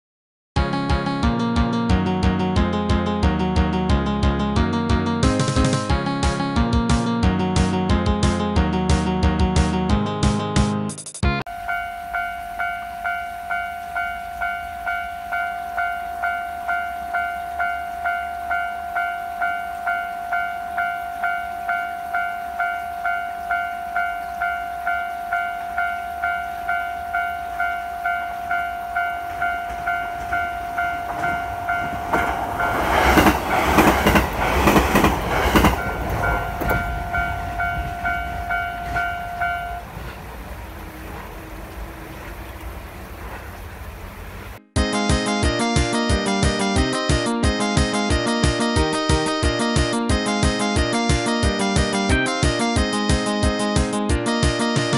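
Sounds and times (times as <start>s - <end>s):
level crossing bell ringing: 11.5s - 33.3s, 35.6s - 39.9s
train rumbling over tracks: 11.5s - 53.9s
wheels clacking on rail joints: 22.5s - 44.0s.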